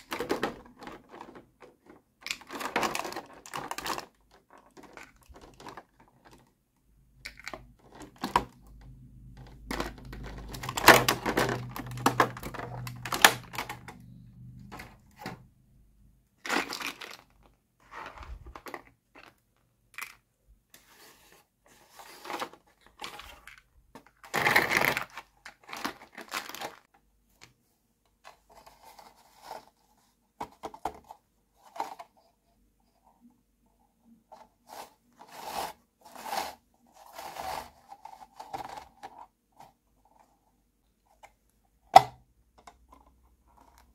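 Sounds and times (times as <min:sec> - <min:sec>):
plastic clatter: 0:00.0 - 0:06.5, 0:07.2 - 0:15.5, 0:16.5 - 0:20.3, 0:30.4 - 0:32.2
plastic rustling: 0:00.0 - 0:06.5, 0:09.4 - 0:15.4, 0:16.4 - 0:19.5, 0:21.8 - 0:27.0
plastic parts clicking and tapping: 0:00.0 - 0:06.6, 0:07.2 - 0:15.5, 0:18.3 - 0:20.3, 0:41.1 - 0:43.9.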